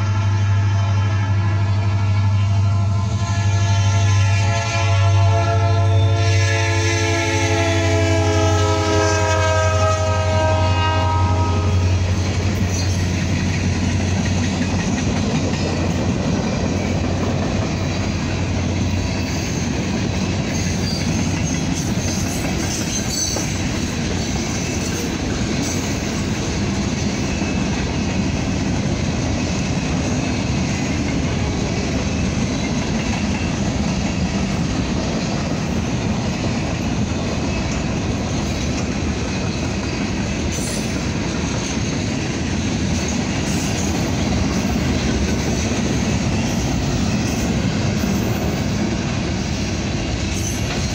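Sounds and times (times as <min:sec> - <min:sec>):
train horn: 0:00.0 - 0:12.5
freight cars rumbling and clattering: 0:11.9 - 0:50.9.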